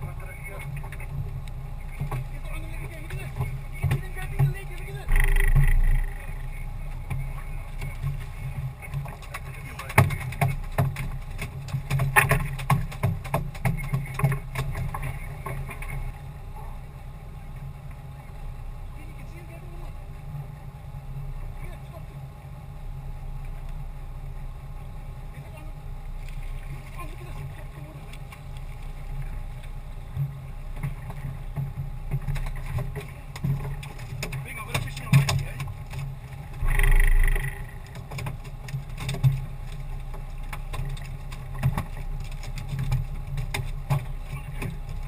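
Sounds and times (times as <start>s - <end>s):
knocks and taps on boat: 0.0s - 16.2s, 26.2s - 45.0s
water splashing: 0.0s - 16.9s, 25.4s - 45.0s
low steady rumble: 0.0s - 45.0s.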